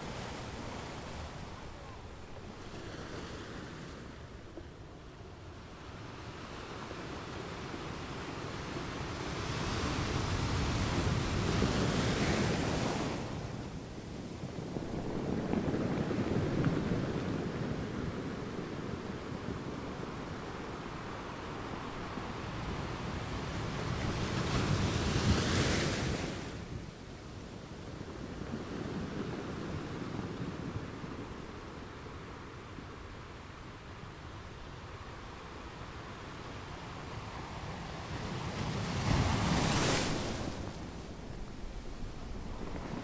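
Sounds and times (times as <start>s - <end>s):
wind buffeting microphone: 9.1s - 26.4s, 37.0s - 43.0s.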